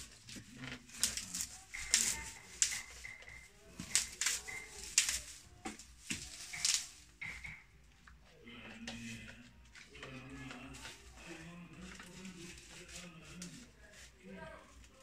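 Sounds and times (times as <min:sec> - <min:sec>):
broom straw swishing: 0:00.0 - 0:07.2, 0:11.8 - 0:15.0.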